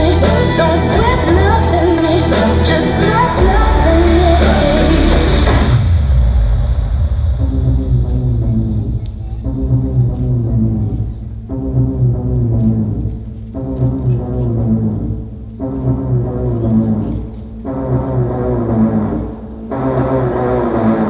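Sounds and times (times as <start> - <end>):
loud dance music with heavy bass: 0.0 - 6.8.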